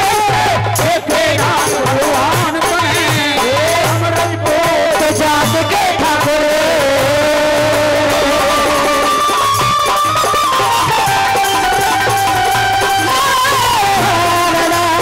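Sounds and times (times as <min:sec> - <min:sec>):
repeating drum beat: 0:00.0 - 0:15.0
melody instrument gliding notes: 0:08.8 - 0:15.0.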